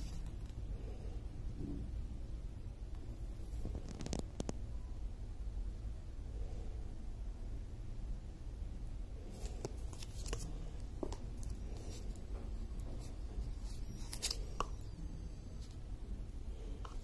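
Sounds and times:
low steady hum: 0:00.0 - 0:17.0
paper and plastic rustling: 0:09.3 - 0:12.2.

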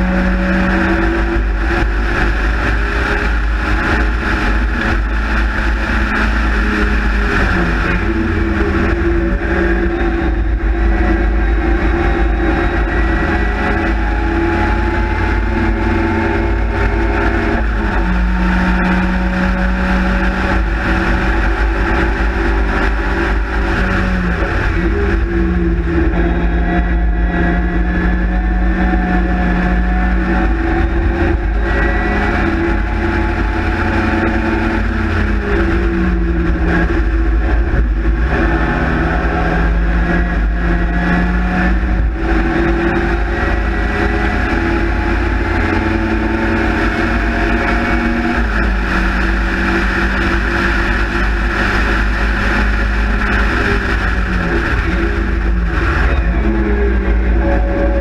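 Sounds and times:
race car engine revving: 0:00.0 - 0:58.0
wind and road noise: 0:00.0 - 0:58.0.

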